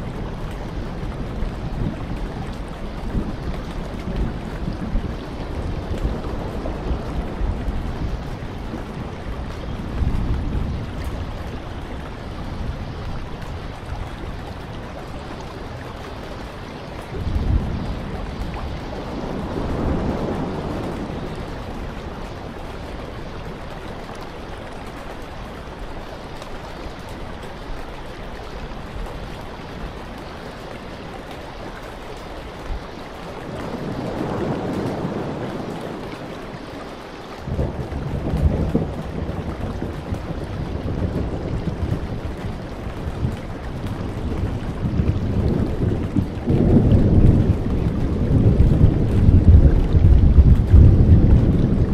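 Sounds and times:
wind: 0.0 - 51.9
heavy surf on rocky shore: 32.6 - 51.9.

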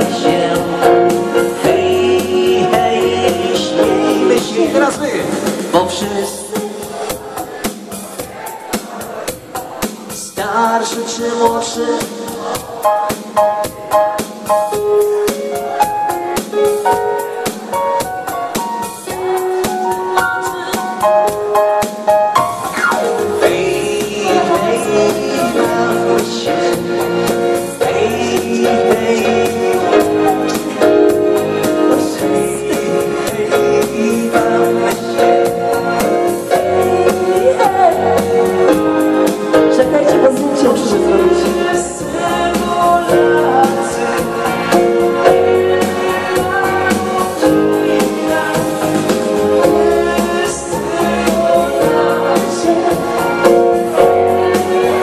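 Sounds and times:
bass line: 0.0 - 7.6, 22.4 - 55.0
man and woman singing: 0.0 - 14.2, 18.8 - 21.8, 22.5 - 55.0
keyboard dance music: 0.0 - 55.0.

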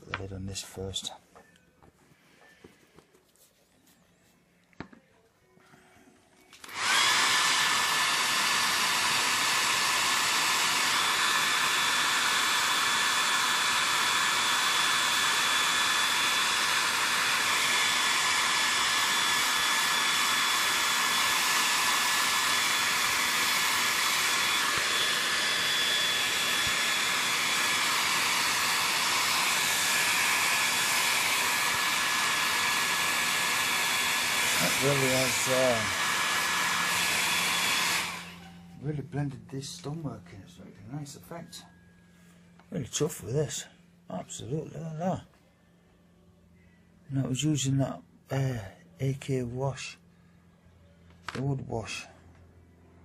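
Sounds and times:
hair dryer blowing: 6.6 - 38.9.

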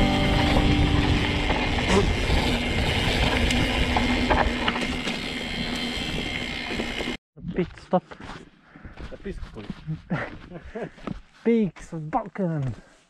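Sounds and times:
wind rumble on microphone: 0.0 - 4.6
bike clicks and rattles: 0.5 - 7.2.

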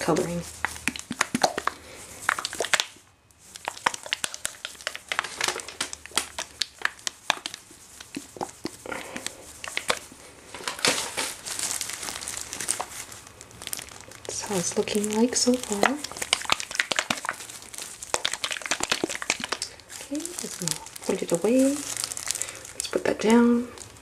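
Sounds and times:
plastic gloves crinkling: 0.0 - 24.0.

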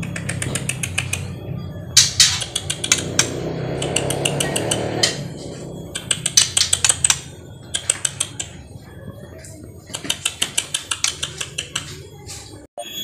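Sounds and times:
bird rapid clicking calls: 0.0 - 1.3, 2.0 - 5.2, 5.9 - 8.6, 9.9 - 11.9.

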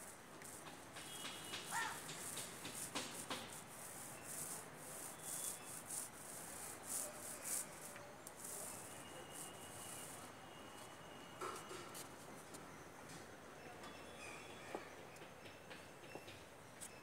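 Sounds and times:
paint roller rubbing on wall: 0.0 - 10.4.

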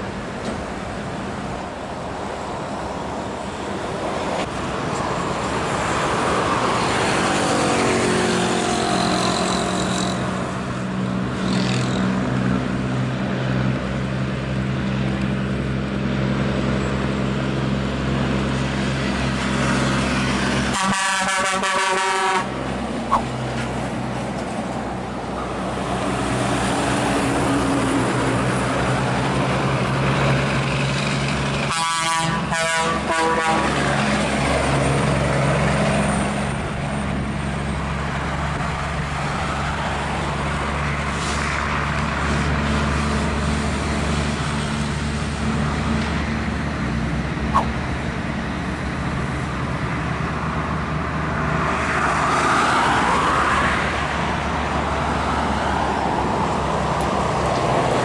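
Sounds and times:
truck diesel engines droning: 0.0 - 58.0
truck air horn: 20.7 - 23.3, 31.7 - 33.9.

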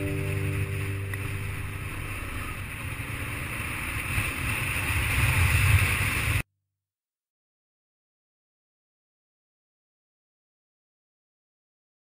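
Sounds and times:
wind and tyre rushing noise: 0.0 - 6.4.

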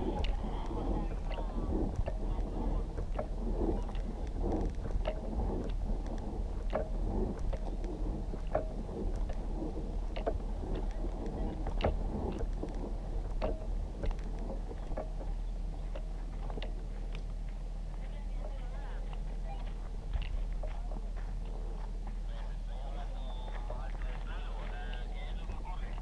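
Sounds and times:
low hum: 0.0 - 26.0
footsteps on dry dirt: 11.9 - 26.0.

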